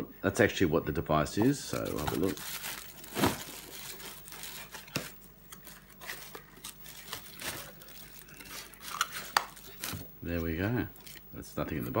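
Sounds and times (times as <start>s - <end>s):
plastic wrapping crinkling: 1.4s - 12.0s
cardboard box rustling: 1.7s - 10.1s.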